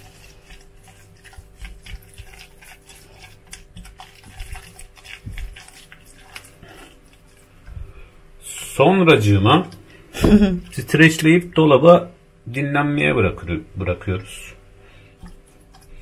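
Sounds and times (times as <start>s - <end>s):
spatula stirring sauce in glass jug: 0.0s - 8.6s, 10.5s - 11.5s, 15.2s - 16.0s
faint steady hum: 0.0s - 16.0s.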